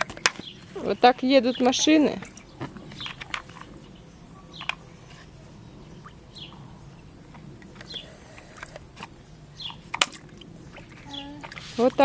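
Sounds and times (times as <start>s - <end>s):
bird chirping: 0.0s - 12.0s
water splashing in pool: 8.6s - 12.0s.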